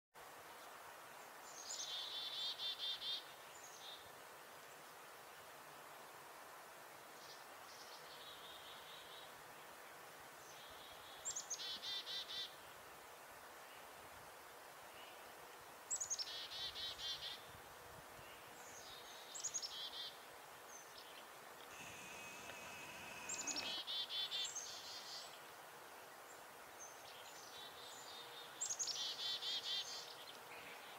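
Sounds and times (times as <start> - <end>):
chickadee alarm calls: 21.7 - 24.9.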